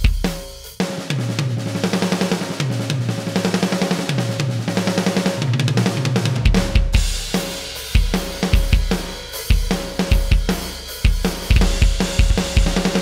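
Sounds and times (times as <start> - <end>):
drum fill: 0.0 - 13.0
electronic drum kit: 0.0 - 13.0.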